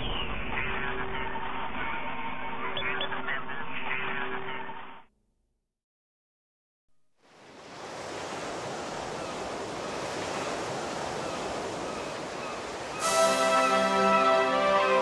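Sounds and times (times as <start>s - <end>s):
music: 13.0s - 15.0s.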